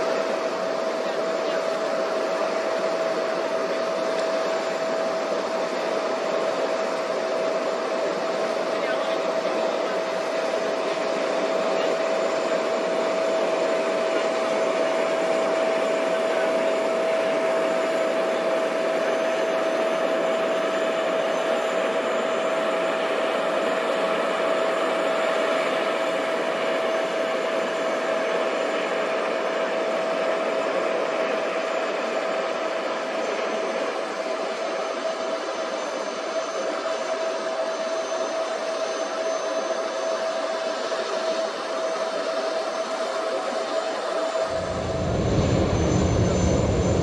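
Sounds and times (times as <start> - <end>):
high jet whine: 0.0 - 47.0
jet engine rush: 38.6 - 47.0.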